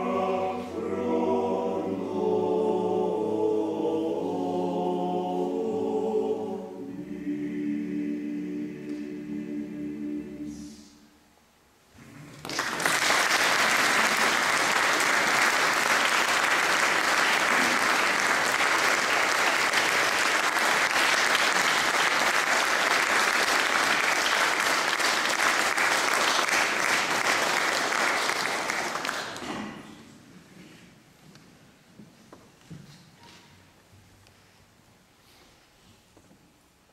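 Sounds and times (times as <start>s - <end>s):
audience applauding: 12.3s - 29.5s.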